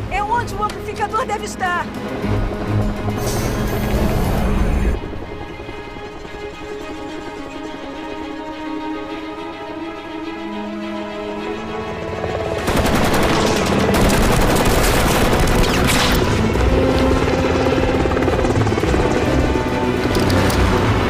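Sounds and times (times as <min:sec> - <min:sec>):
helicopter rotor chopping: 0:00.0 - 0:08.1, 0:11.8 - 0:21.0
orchestral music: 0:00.0 - 0:21.0
machine-gun fire: 0:12.7 - 0:16.6.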